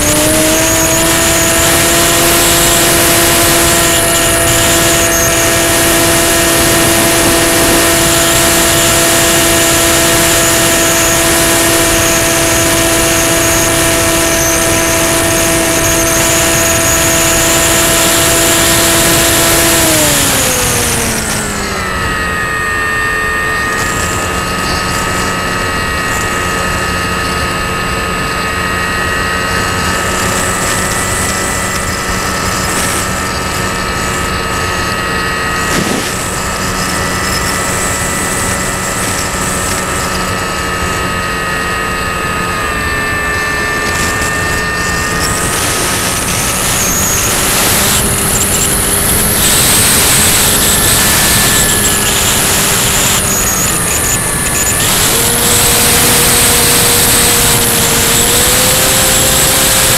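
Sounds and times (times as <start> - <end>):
wind rushing past camera: 0.0 - 11.2
model aircraft motor whine: 0.0 - 59.9.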